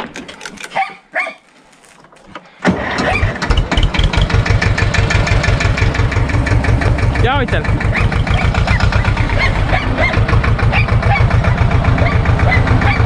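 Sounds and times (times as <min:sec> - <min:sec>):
diesel tractor engine starting: 0:02.0 - 0:13.0
diesel engine idling: 0:02.6 - 0:13.0.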